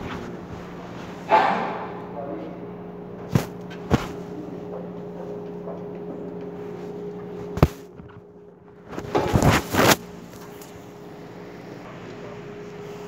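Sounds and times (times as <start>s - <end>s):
steady low hum: 0.0s - 13.0s
rustling and scraping: 6.7s - 10.8s.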